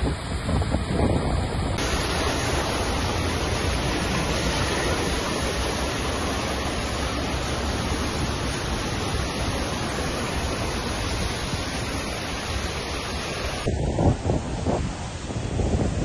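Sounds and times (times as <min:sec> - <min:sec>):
floodwater rushing down street: 0:00.0 - 0:16.0
car wheels spraying water: 0:01.8 - 0:13.7.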